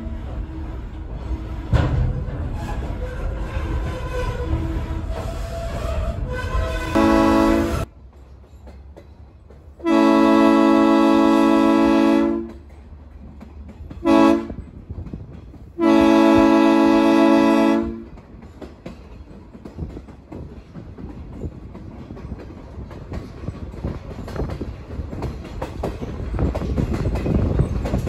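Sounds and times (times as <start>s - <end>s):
train wheels clicking over rail joints: 0.0s - 28.0s
locomotive air horn blasts: 3.8s - 7.9s, 9.8s - 12.6s, 14.0s - 14.6s, 15.8s - 18.1s.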